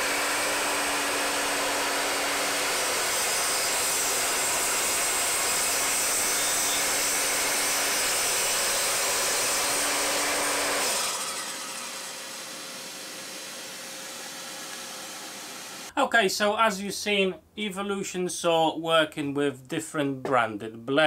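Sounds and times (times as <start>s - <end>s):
mitre saw cutting plywood: 0.0s - 15.9s
low hiss: 15.4s - 21.0s.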